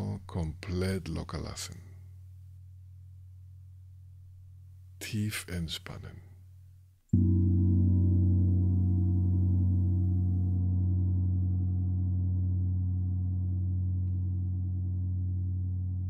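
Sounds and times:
gong ringing: 7.2s - 15.7s.

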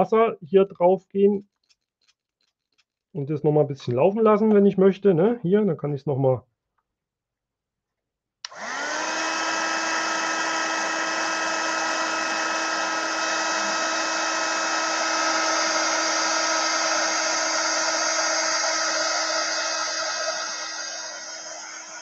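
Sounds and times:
heat gun blowing and whining: 8.4s - 22.0s.

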